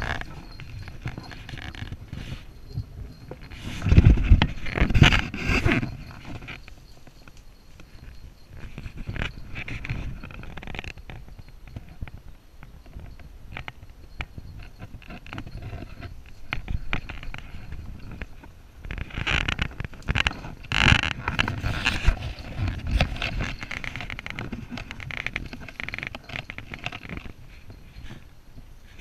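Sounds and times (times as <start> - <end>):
clothing and branches rustling: 13.0 - 29.0.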